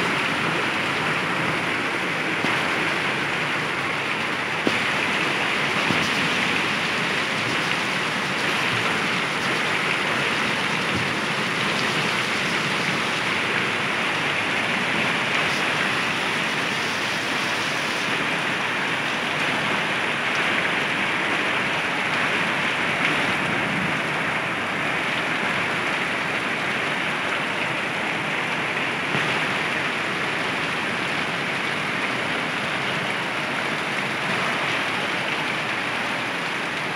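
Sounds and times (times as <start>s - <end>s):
hail and heavy rain pelting: 0.0s - 36.9s.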